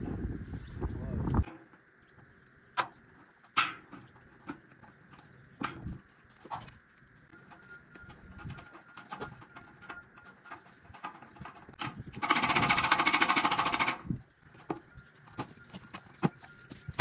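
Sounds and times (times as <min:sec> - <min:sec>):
impact driver rattling: 0:11.9 - 0:14.1.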